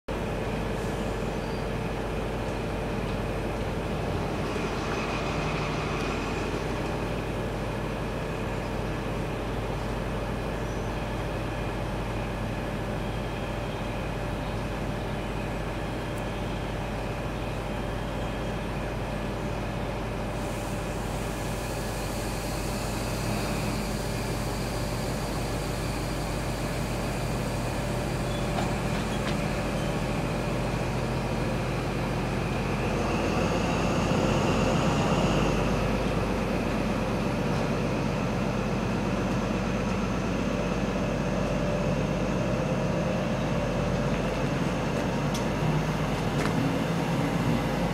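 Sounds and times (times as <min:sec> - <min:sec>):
diesel train engine idling: 0:00.1 - 0:47.9
hiss: 0:20.3 - 0:28.2.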